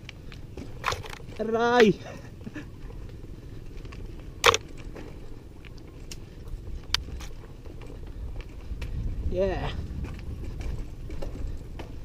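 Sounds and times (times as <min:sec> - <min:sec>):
bicycle tyres rumbling on dirt: 0:00.0 - 0:12.0
bike rattling clicks: 0:00.0 - 0:12.0.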